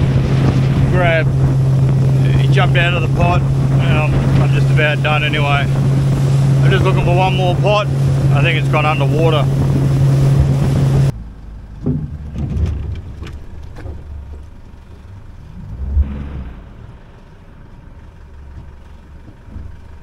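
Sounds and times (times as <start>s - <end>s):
low engine rumble: 0.0s - 20.0s
outboard motor running: 0.0s - 20.0s
wind and water noise: 0.0s - 20.0s
knocks and thump: 11.8s - 15.1s.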